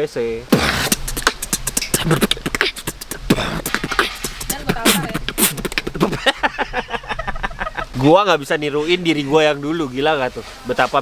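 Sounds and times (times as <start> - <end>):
person beatboxing: 0.5 - 6.3.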